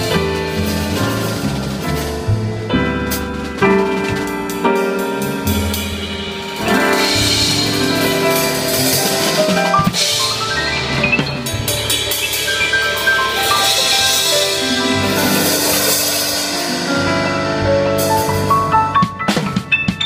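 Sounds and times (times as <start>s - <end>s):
bass line: 0.0s - 20.0s
drum kit with cymbal washes: 0.0s - 20.0s
sustained melodic notes: 5.0s - 20.0s.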